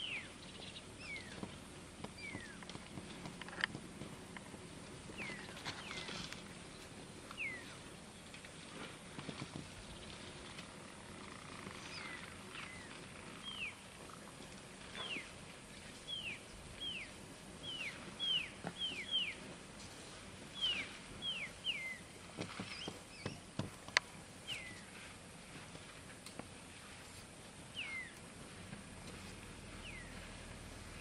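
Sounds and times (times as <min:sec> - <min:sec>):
bird whistling: 0:07.4 - 0:07.7, 0:27.8 - 0:28.2.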